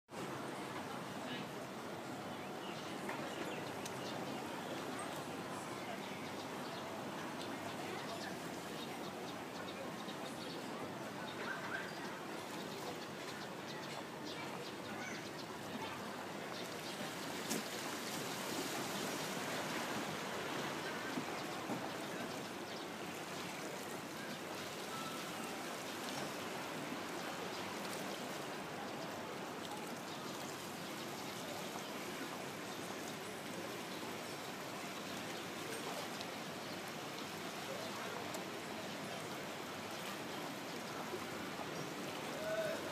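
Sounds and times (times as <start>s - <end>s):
small waves lapping: 10.6s - 42.9s.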